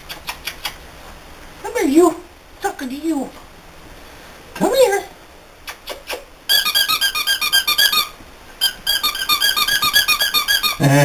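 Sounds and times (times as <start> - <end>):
squeaky dog toy squeezed: 6.0 - 10.8.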